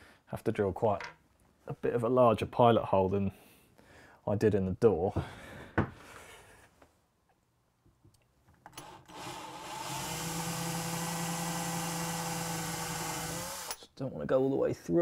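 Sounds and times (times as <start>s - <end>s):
cordless drill motor running: 8.8s - 13.8s.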